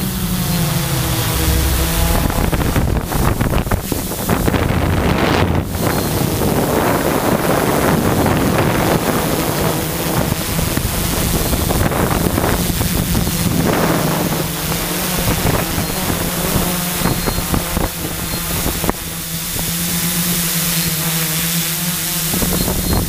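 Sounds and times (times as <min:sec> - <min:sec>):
wind buffeting microphone: 0:00.0 - 0:20.4, 0:22.2 - 0:23.0
drone propellers humming: 0:00.0 - 0:23.0.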